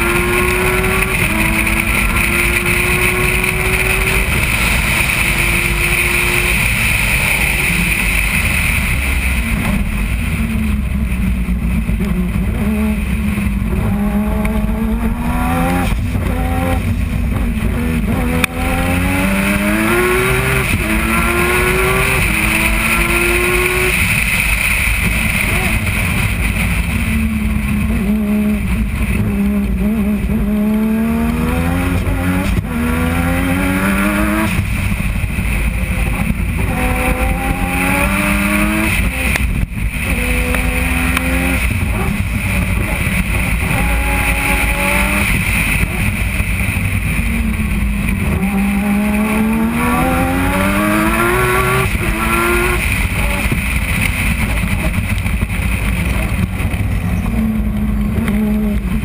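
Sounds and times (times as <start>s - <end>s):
race car rotary engine revving: 0.0s - 59.0s.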